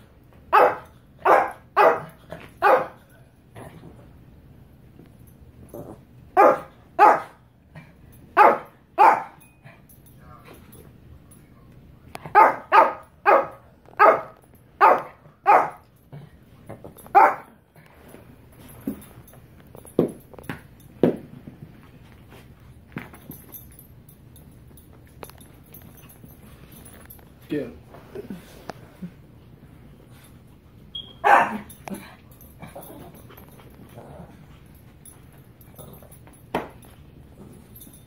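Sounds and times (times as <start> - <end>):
small dog barking: 0.5 - 3.0, 6.4 - 7.4, 8.4 - 9.4, 12.3 - 15.8, 17.2 - 17.5, 31.2 - 31.7.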